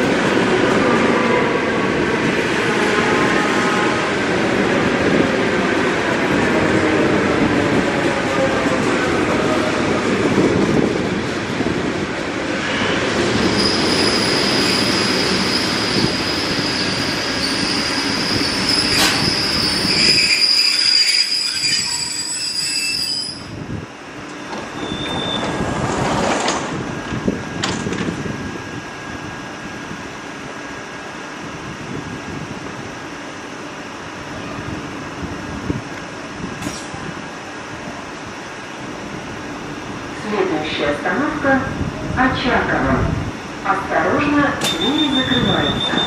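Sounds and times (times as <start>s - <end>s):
standing train humming: 0.0s - 22.4s, 23.4s - 46.0s
train rolling in: 0.0s - 46.0s
train doors opening: 12.4s - 23.6s, 24.2s - 28.3s, 35.9s - 37.2s, 44.2s - 46.0s
high brake squeal: 13.4s - 23.5s, 24.4s - 25.6s, 44.6s - 46.0s.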